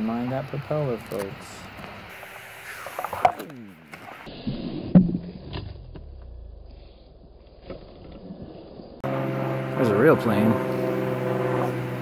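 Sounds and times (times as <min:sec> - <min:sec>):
model airplane motor whine: 0:09.0 - 0:12.0.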